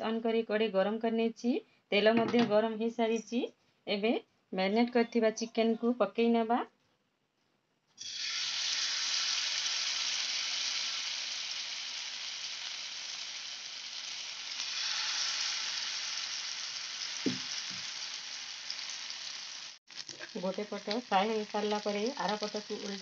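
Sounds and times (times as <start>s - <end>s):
chicken sizzling in hot oil: 8.0s - 23.0s
soft knocks: 17.3s - 17.8s.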